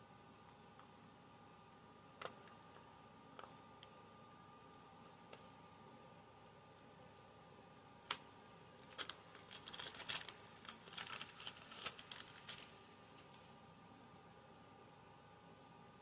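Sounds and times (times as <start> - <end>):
cellophane snap: 8.0 - 13.4
cellophane wrapper crinkling: 8.1 - 13.4.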